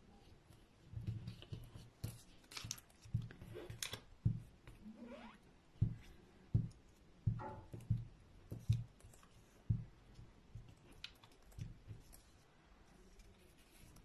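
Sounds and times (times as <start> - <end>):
paper rustling and crackling: 1.2 - 4.1.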